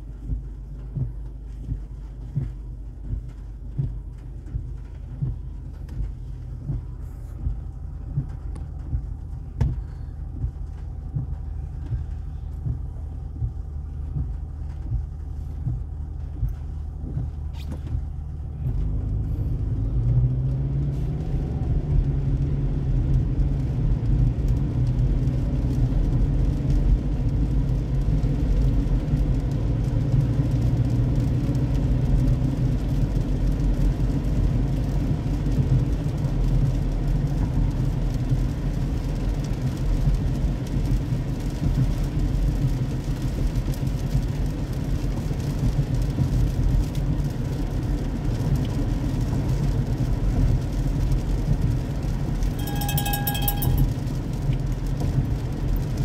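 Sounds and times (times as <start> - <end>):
car road rumble on wet road: 0.0 - 56.0
brief high tone: 52.6 - 54.0.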